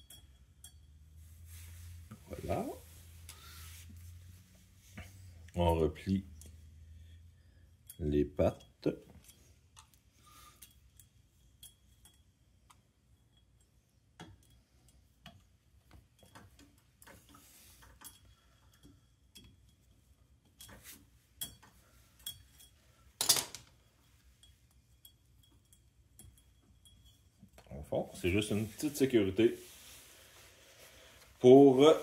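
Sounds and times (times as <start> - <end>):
metal clink: 21.4 - 27.7.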